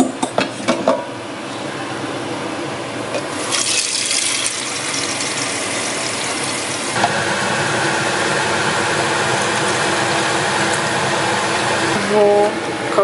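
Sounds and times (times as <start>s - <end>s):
steady mechanical hum: 0.0s - 13.0s
water poured into pot: 3.3s - 7.0s
tap water running into jug: 3.3s - 7.1s.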